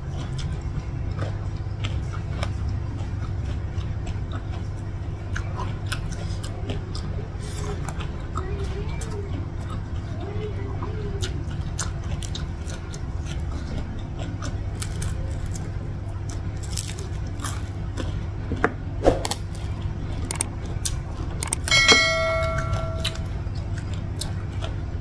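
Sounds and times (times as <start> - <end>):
chewing and mouth clicks: 0.0 - 21.8, 22.4 - 25.0
low hum: 9.4 - 25.0
sharp ringing clink: 21.7 - 23.3.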